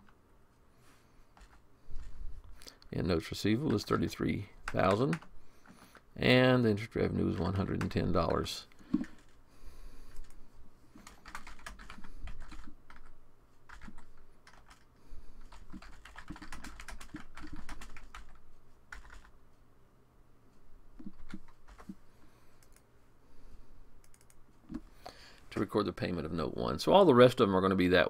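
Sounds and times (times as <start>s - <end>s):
computer keyboard typing: 3.6s - 6.0s, 7.3s - 8.4s, 9.0s - 9.4s, 11.0s - 19.3s, 21.0s - 22.0s, 24.0s - 24.4s.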